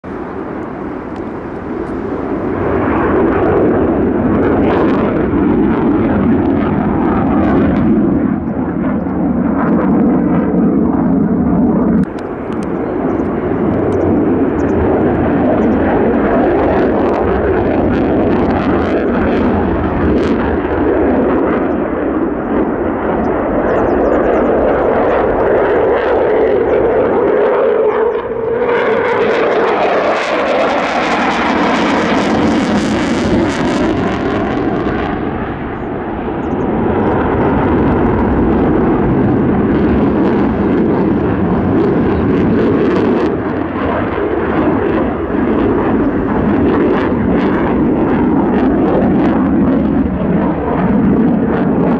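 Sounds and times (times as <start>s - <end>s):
fighter jet engine noise: 0.0s - 51.9s.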